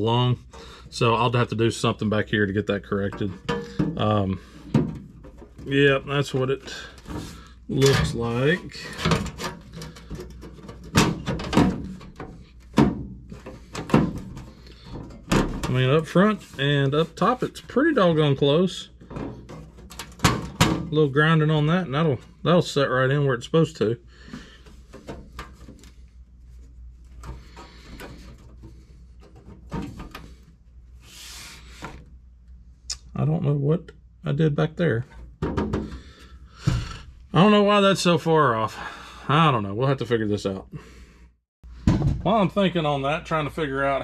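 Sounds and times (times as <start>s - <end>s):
metal scraping and clunking: 2.9s - 21.1s.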